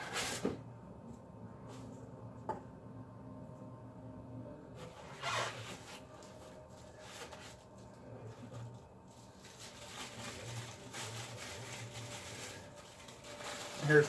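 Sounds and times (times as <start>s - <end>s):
tissue paper rustling: 4.8s - 14.0s.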